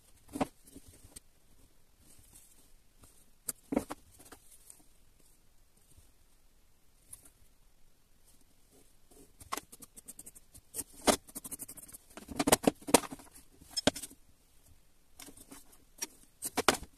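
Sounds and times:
pencil scratching on wood: 9.1s - 12.6s.

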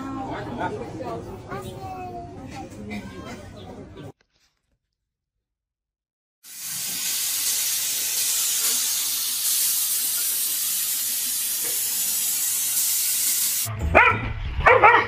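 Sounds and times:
dog yipping: 13.9s - 15.0s.

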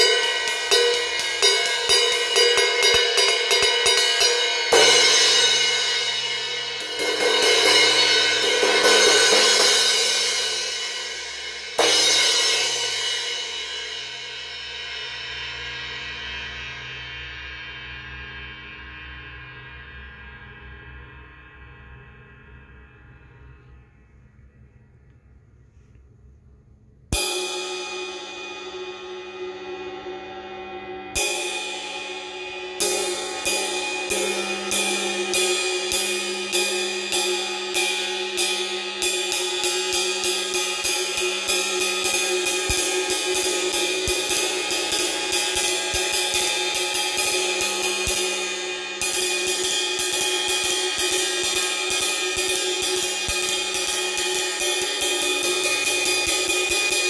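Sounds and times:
cymbal struck with drumstick: 0.0s - 15.1s, 27.1s - 57.0s.

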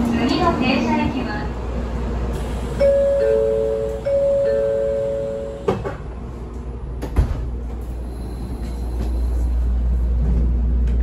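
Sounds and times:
train low hum: 0.0s - 11.0s
train door heavy thud: 7.0s - 7.8s.

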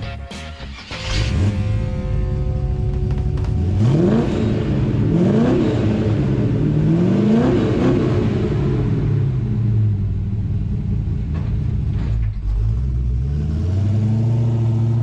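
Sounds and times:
engine idling and revving: 0.0s - 15.0s.

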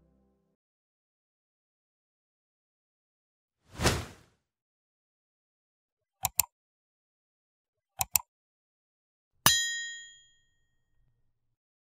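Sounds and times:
mouse clicks: 6.2s - 6.5s, 8.0s - 8.3s
bright bell ding: 9.5s - 10.7s.

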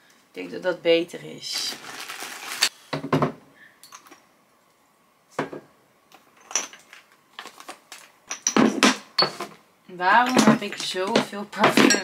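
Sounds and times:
bottles knocking and clinking: 6.4s - 7.0s, 8.3s - 9.6s, 10.2s - 12.0s.

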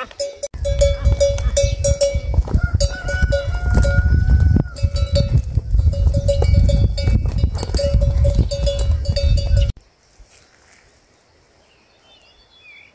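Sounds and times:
neck bell clanking: 0.0s - 9.8s.

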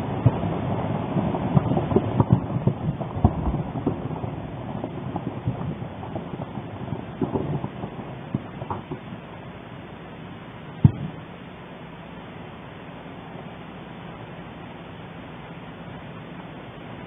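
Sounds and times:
sharp cracks: 0.0s - 9.4s, 10.8s - 11.3s
volcano eruption rumbling roar: 0.0s - 10.0s.

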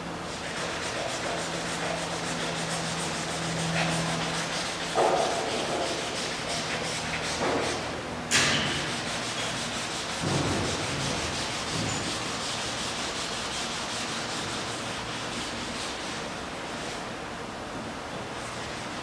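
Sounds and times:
gloved hand rubbing canvas: 0.3s - 7.9s.

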